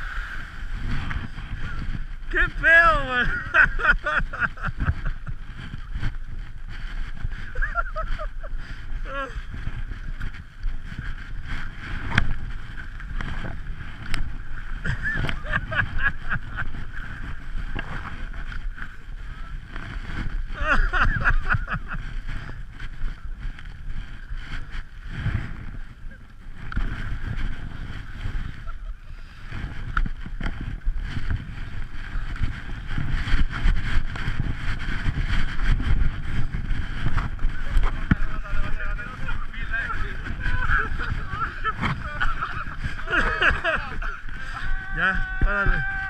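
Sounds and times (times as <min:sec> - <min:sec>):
skis hissing on packed snow: 0:00.0 - 0:01.0
skis sliding over packed snow: 0:00.0 - 0:46.0
wind buffeting microphone: 0:00.0 - 0:46.0.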